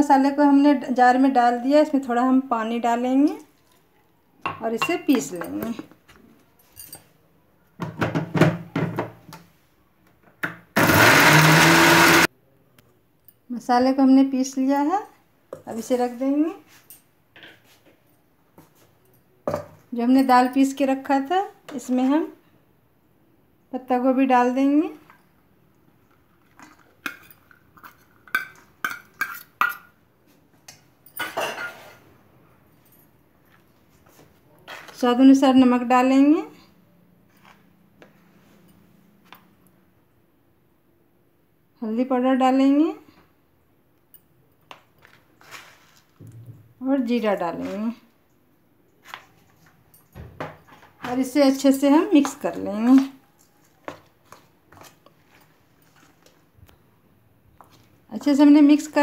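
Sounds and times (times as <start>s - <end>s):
mixer grinder motor running: 10.8s - 12.3s
cabbage rustling into bowl: 45.4s - 46.2s.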